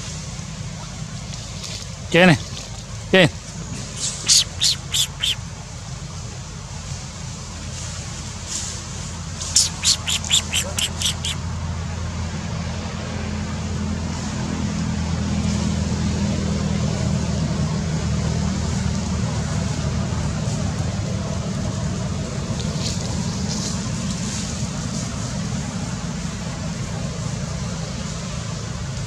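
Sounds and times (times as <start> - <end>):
vehicle engine humming: 0.4 - 6.8, 9.4 - 14.6.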